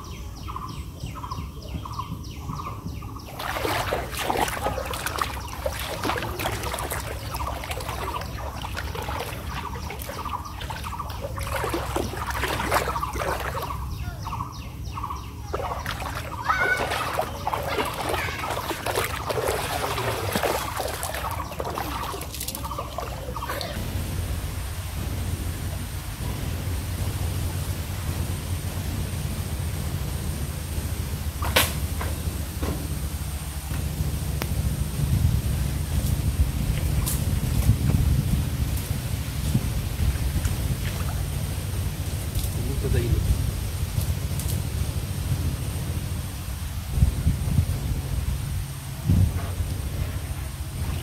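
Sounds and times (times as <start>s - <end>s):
repeating pulsing outdoor call: 0.0s - 23.8s
water splashing and sloshing: 2.5s - 51.0s.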